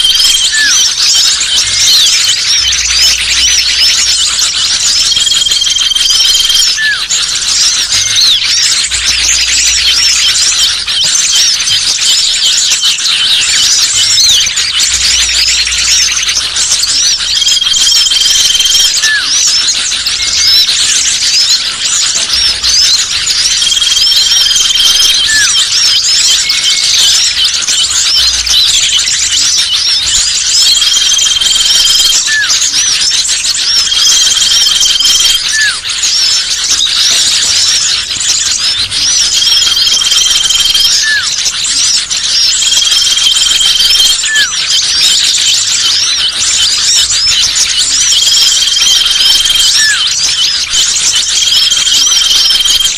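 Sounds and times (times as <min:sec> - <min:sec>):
songbirds chirping chorus: 0:00.0 - 0:52.9
high whistle: 0:05.1 - 0:07.1, 0:30.6 - 0:32.7, 0:33.9 - 0:35.8, 0:39.3 - 0:41.4, 0:48.2 - 0:50.2.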